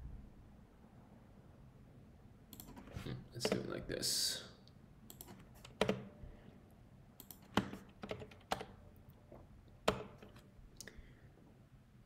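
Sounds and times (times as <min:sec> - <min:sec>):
typing on computer keyboard: 0:05.1 - 0:06.1, 0:07.2 - 0:08.8, 0:09.8 - 0:10.5.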